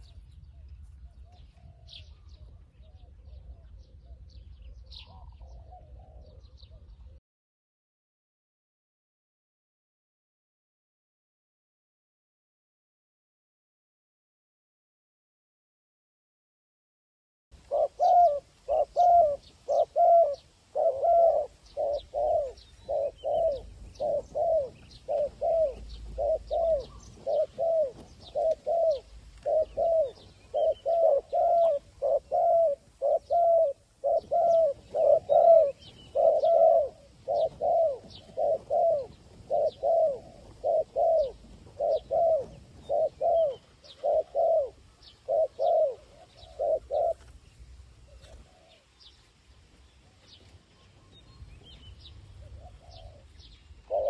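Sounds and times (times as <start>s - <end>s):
dove cooing: 1.2s - 7.2s, 17.6s - 48.9s, 50.9s - 54.0s.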